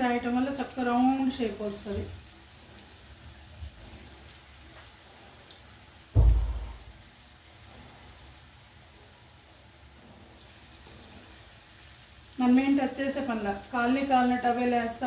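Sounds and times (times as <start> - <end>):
oil sizzling: 0.0 - 15.0
loud dull thump: 6.2 - 7.0.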